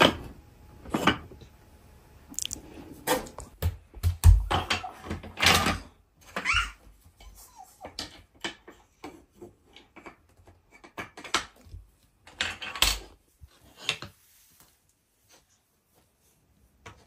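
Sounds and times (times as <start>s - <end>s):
wooden toy track pieces clattering: 12.2s - 13.1s.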